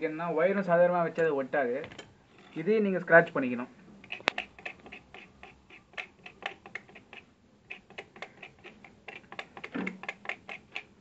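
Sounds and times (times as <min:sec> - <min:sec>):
knife blade scraping wire: 0:04.0 - 0:10.9.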